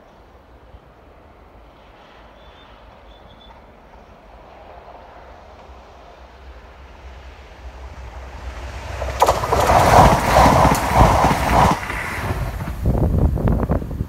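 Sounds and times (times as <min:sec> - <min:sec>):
train passing at speed: 0:00.0 - 0:14.0
wheel thumps: 0:09.0 - 0:12.9.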